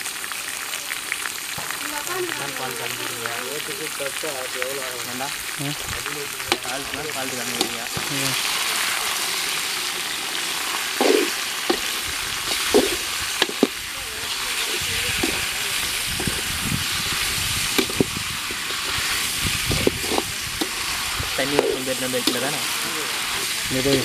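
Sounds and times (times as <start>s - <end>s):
chicken sizzling in a pot: 0.0s - 24.0s
ladle scraping and knocking pot: 11.0s - 13.8s, 17.7s - 19.1s, 19.7s - 22.5s.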